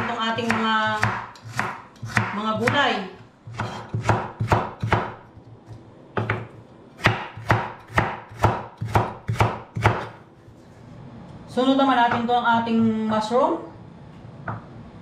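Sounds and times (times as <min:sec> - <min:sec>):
knife chopping on wooden board: 0:00.0 - 0:02.9, 0:03.5 - 0:05.2, 0:06.2 - 0:10.2.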